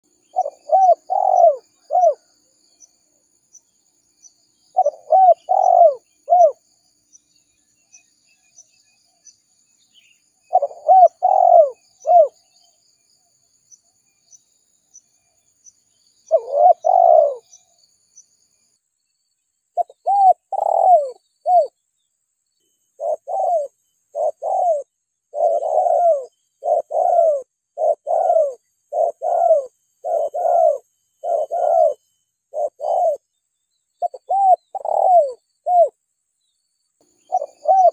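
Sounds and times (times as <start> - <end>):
dove cooing: 0.3 - 2.3, 4.7 - 6.6, 10.5 - 12.4, 16.3 - 17.6, 19.8 - 21.7, 23.0 - 33.3, 34.0 - 35.9, 37.3 - 37.9.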